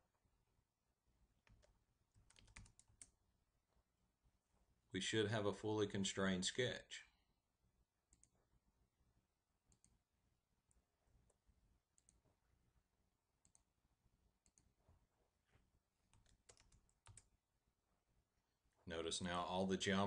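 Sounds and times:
computer mouse clicks: 8.1 - 8.4, 9.7 - 10.0, 12.0 - 12.2, 13.4 - 13.7, 14.4 - 14.7.

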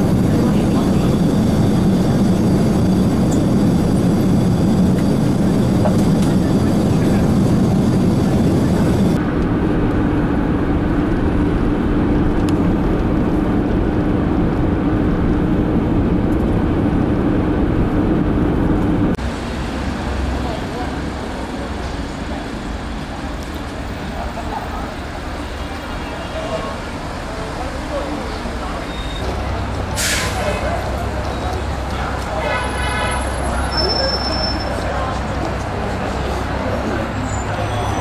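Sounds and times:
airliner cabin noise: 0.0 - 19.2
car road noise on highway: 0.0 - 28.6.

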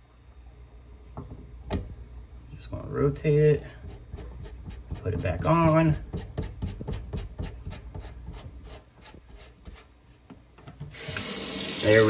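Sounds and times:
water running into sink: 10.9 - 12.0.

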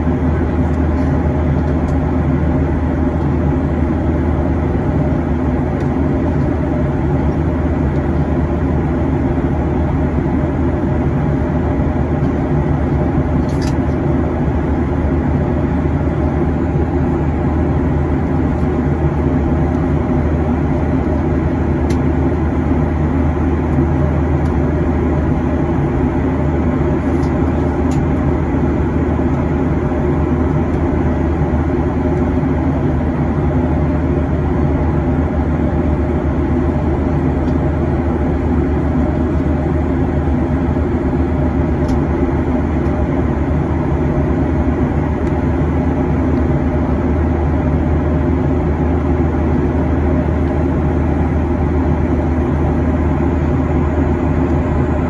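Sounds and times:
air rushing along fuselage: 0.0 - 55.0
airplane cabin engine hum: 0.0 - 55.0.

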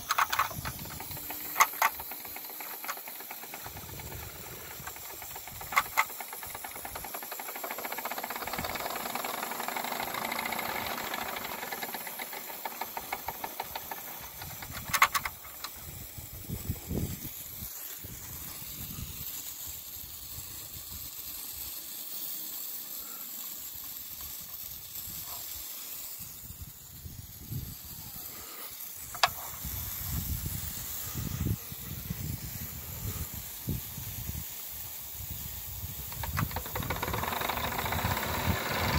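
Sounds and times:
sharp clicks: 0.0 - 15.9, 29.1 - 29.4, 36.0 - 38.9
model steam engine chuffing: 0.0 - 38.9
steam hissing: 0.0 - 38.9.

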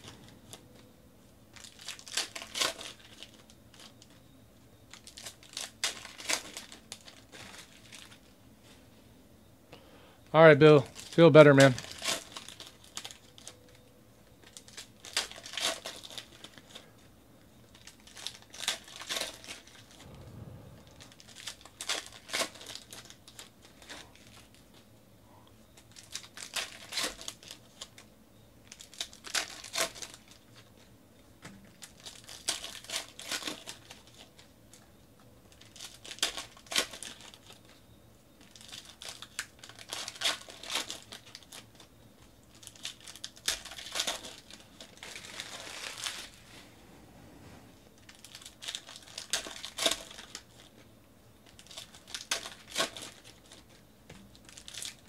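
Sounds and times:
card pack wrappers crinkling: 1.5 - 4.2, 4.9 - 8.3, 10.8 - 13.8, 14.4 - 16.9, 17.7 - 20.0, 21.2 - 24.7, 25.8 - 30.9, 31.7 - 34.8, 35.5 - 37.8, 38.4 - 46.5, 48.0 - 55.0.

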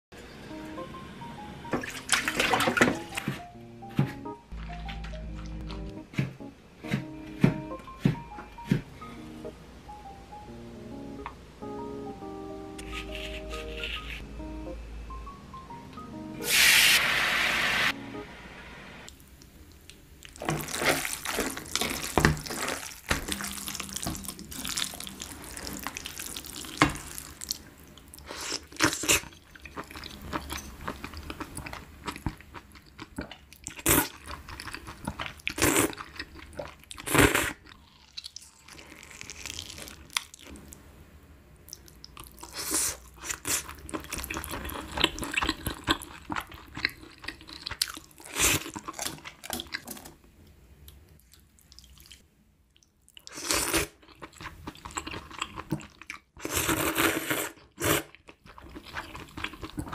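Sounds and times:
wet chewing: 41.7 - 50.1, 52.8 - 59.9.

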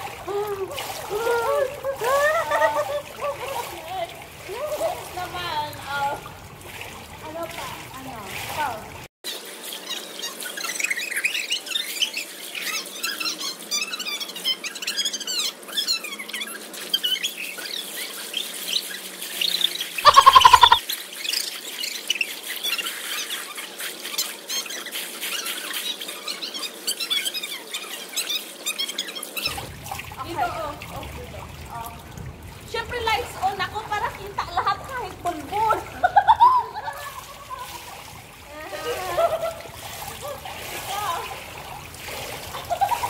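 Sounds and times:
swimmer splashing in pool: 0.0 - 43.0
small birds chirping: 9.7 - 29.6
short loud pitched cry: 20.1 - 20.8.

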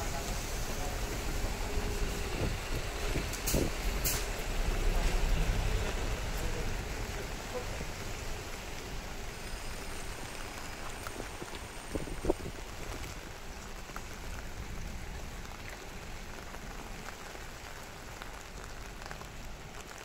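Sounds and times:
heavy vehicle rumbling past: 0.0 - 9.1
rain on wet road: 0.0 - 20.0.

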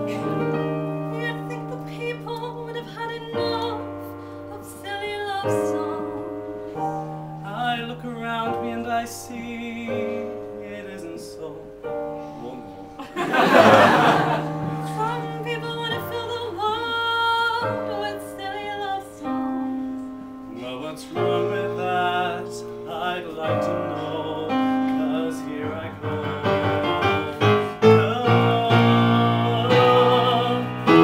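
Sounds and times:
woman singing: 0.0 - 6.4, 14.8 - 19.7
piano accompaniment: 0.0 - 31.0
man singing: 7.4 - 12.0, 20.5 - 31.0.

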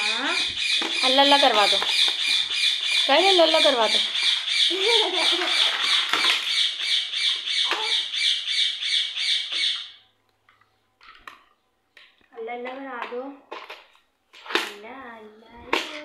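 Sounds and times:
rapid high-pitched chirping: 0.0 - 10.0
toddler vocal sound: 7.6 - 8.1.

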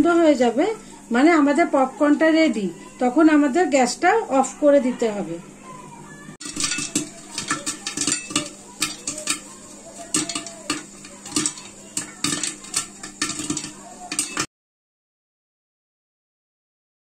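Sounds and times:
kernels striking pot and lid: 6.4 - 14.5
popcorn popping in a metal pot: 6.4 - 14.5.

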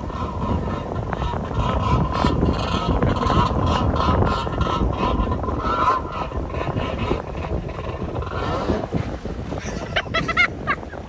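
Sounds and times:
choppy sea water: 0.0 - 11.0
wind buffeting microphone: 0.0 - 11.0.

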